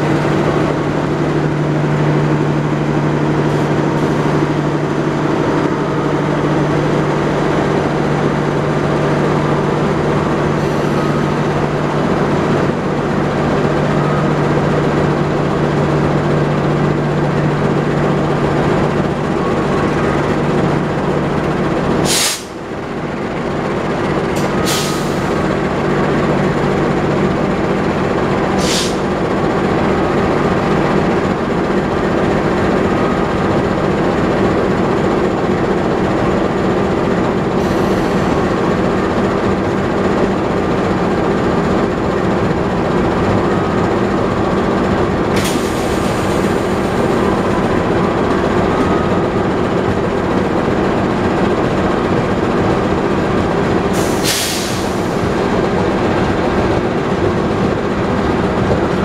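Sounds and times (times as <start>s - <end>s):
train coaches rolling slowly: 0.0s - 59.0s
short hisses of air: 22.1s - 22.6s, 28.6s - 29.0s.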